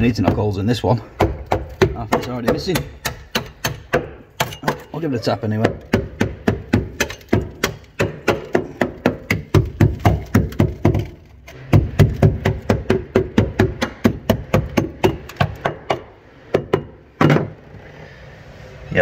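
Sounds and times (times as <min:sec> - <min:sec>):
hammer tapping on metal panel: 0:01.2 - 0:04.9, 0:05.6 - 0:11.1, 0:11.7 - 0:17.4.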